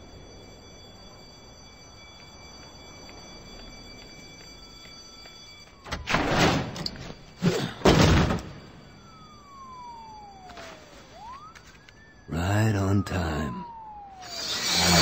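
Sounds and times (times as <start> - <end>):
door crashing open: 5.9 - 7.0, 7.7 - 8.6.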